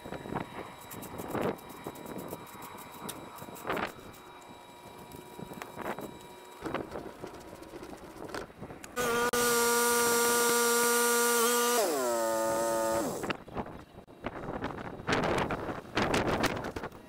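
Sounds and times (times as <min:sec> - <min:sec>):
mower engine buzzing: 0:00.0 - 0:13.5.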